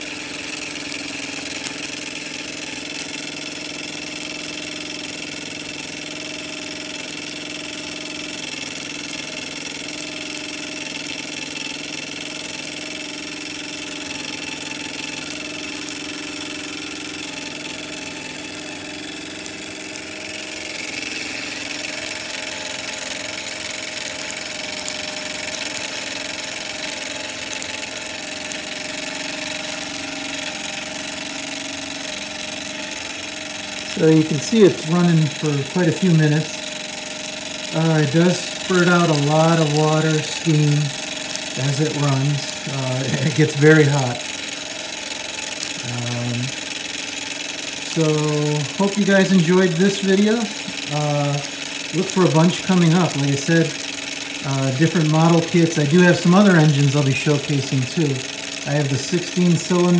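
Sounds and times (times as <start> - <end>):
miniature steam engine whirring: 0.0 - 59.9
steam hissing: 27.8 - 59.9.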